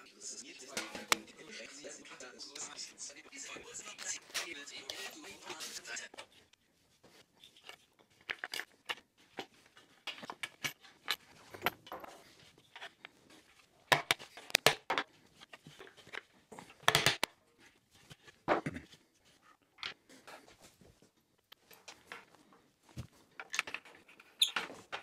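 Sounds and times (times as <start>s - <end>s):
wooden pieces clicking and knocking: 7.4s - 17.4s, 23.0s - 25.0s.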